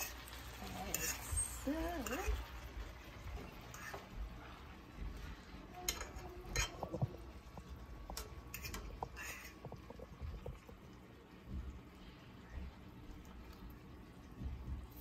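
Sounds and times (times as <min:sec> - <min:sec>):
metal fork clinking on frying pan: 0:00.9 - 0:01.2, 0:05.8 - 0:06.9, 0:08.1 - 0:09.5.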